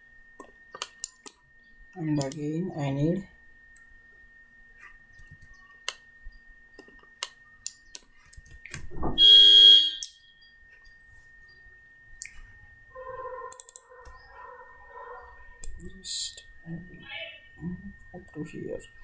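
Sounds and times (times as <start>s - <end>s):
faint high whine: 0.0s - 19.0s
computer mouse clicking: 2.2s - 2.4s, 13.5s - 14.2s, 15.6s - 16.0s
loud electronic buzzing beep: 9.1s - 10.6s.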